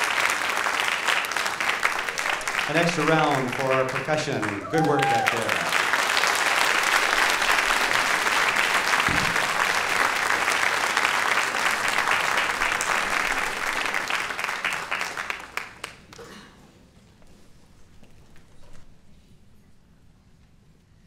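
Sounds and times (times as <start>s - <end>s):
audience clapping: 0.0s - 16.3s.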